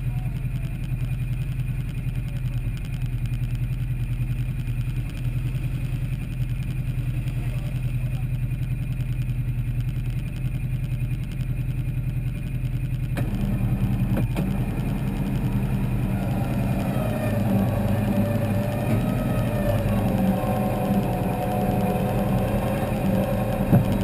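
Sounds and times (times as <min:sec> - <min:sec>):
engine idling: 0:00.0 - 0:24.0
high wavering whine: 0:00.0 - 0:24.0.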